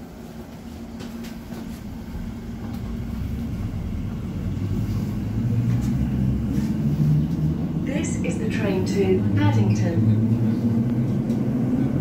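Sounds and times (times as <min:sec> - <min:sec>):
train rumbling in tunnel: 0:00.0 - 0:12.0.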